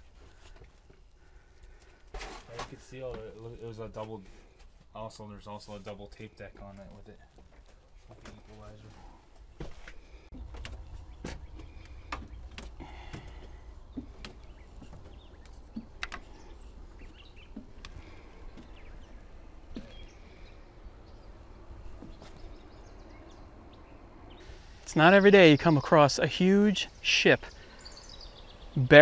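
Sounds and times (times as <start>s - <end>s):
low rumble: 10.3s - 16.0s
high bird chirp: 22.1s - 29.0s.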